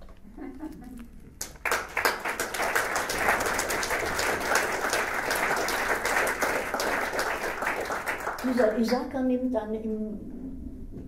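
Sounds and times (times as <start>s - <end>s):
audience applauding: 1.4s - 9.1s.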